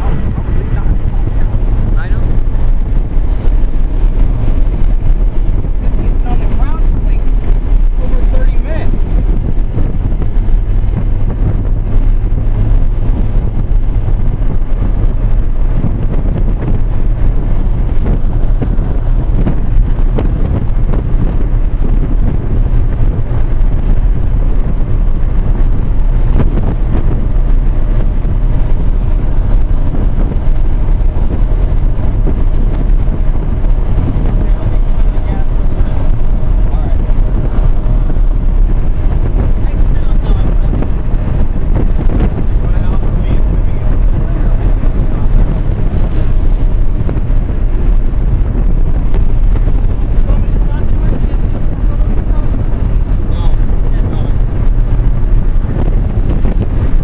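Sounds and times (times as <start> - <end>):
moving car rumble: 0.0 - 57.0
wind buffeting microphone: 0.0 - 57.0.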